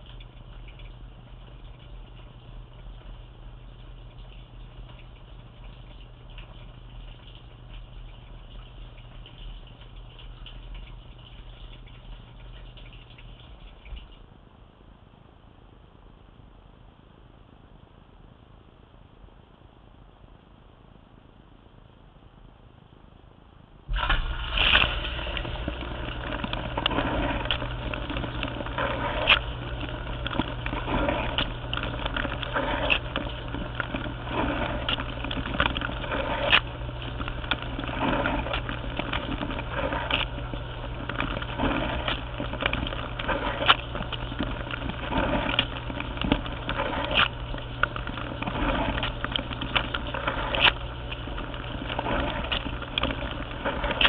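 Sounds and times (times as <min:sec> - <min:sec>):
dishwasher pump humming: 0:00.0 - 0:14.2, 0:23.9 - 0:54.0
water spattering on camera: 0:23.9 - 0:54.0
water spraying and splashing: 0:23.9 - 0:54.0.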